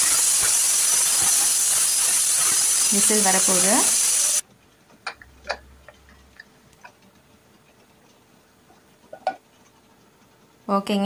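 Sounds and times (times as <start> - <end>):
pressure cooker hissing: 0.0 - 4.4.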